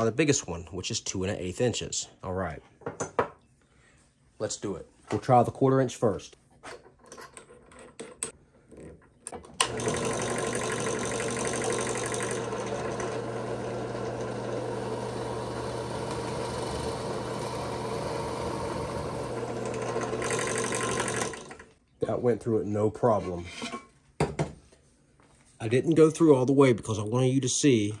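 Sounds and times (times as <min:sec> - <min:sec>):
drill bit boring into wood: 0:09.6 - 0:21.7
drill press motor running: 0:09.6 - 0:21.8.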